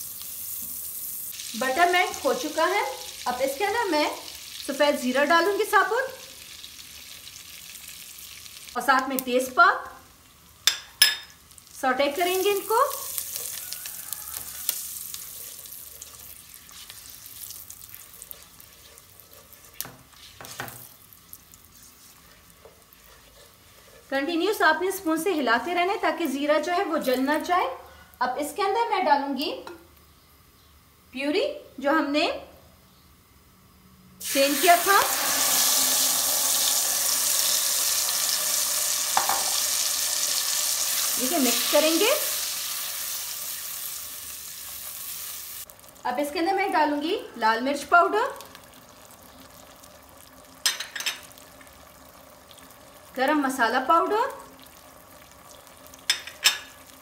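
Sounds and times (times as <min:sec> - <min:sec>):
spices sizzling in oil: 0:00.0 - 0:27.6, 0:34.2 - 0:57.0
spatula stirring: 0:12.4 - 0:25.7.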